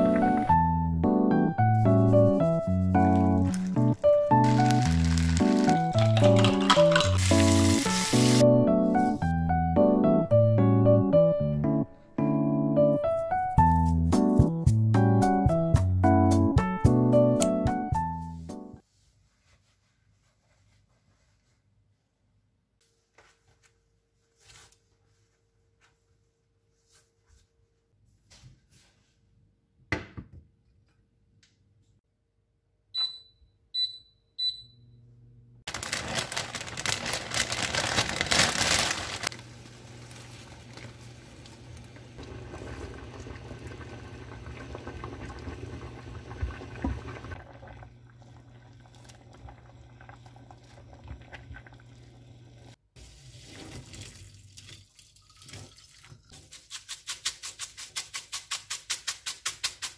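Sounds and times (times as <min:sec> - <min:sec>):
water running: 0:01.8 - 0:08.4, 0:35.7 - 0:57.3
pot of water boiling: 0:03.4 - 0:08.4, 0:35.8 - 0:56.3
induction hob humming: 0:39.3 - 0:52.8.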